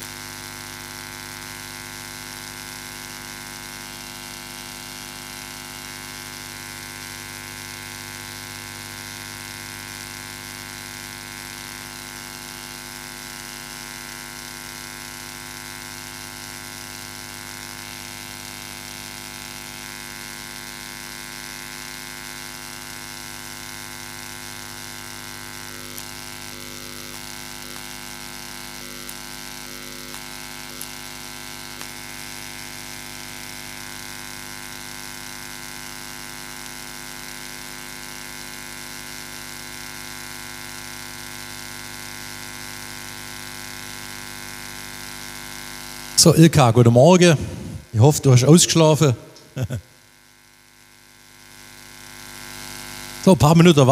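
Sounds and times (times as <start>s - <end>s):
electrical hum and buzz: 45.9s - 50.0s.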